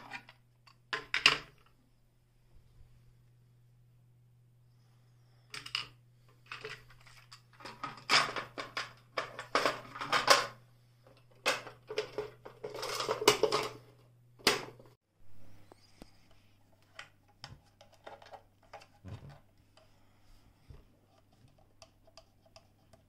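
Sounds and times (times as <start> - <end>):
plastic parts rattling and clicking: 5.5 - 14.9, 16.8 - 19.4.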